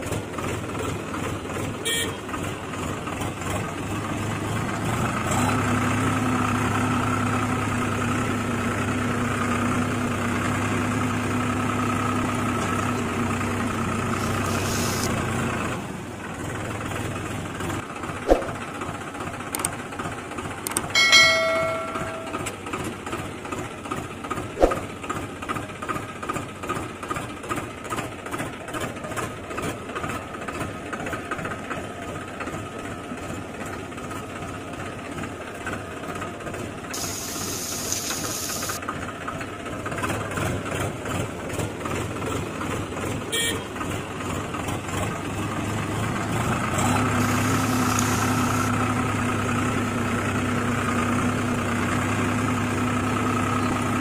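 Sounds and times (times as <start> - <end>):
toy tractor motor humming: 13.6 - 15.2, 36.9 - 38.8, 46.6 - 49.0
sharp clicks: 19.5 - 19.8, 20.6 - 20.9
short ringing tone: 21.0 - 22.6.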